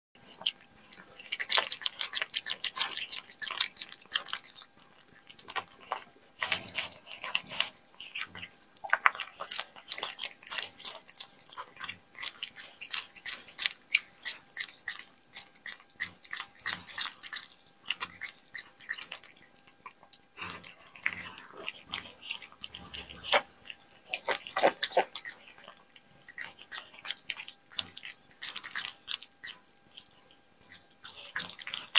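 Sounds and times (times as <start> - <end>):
cat chewing meat: 0.2 - 31.9.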